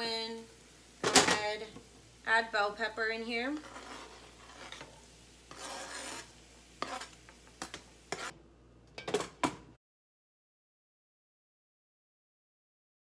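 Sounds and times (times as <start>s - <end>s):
knife scraping cutting board: 3.5s - 8.4s.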